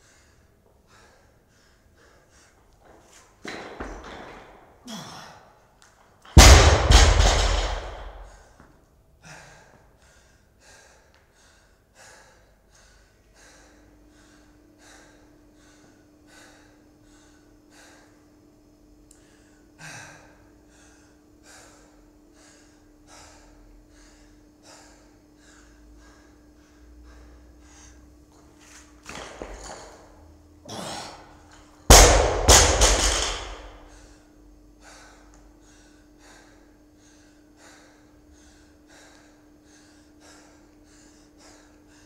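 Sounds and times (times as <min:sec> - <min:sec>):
person panting hard: 0:00.0 - 0:02.7, 0:06.6 - 0:18.4, 0:19.2 - 0:28.2, 0:32.1 - 0:42.0
barbell crashing on floor: 0:03.4 - 0:04.8, 0:06.4 - 0:08.4, 0:29.1 - 0:30.1, 0:31.9 - 0:33.9.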